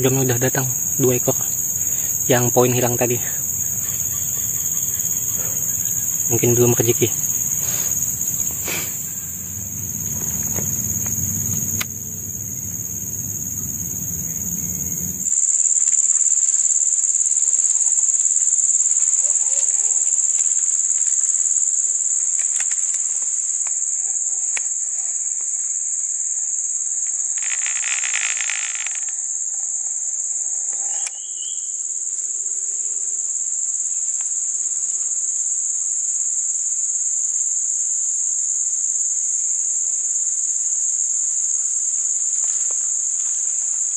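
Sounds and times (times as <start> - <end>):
insect chorus drone: 0.0 - 43.9
low rumbling noise: 3.2 - 15.3.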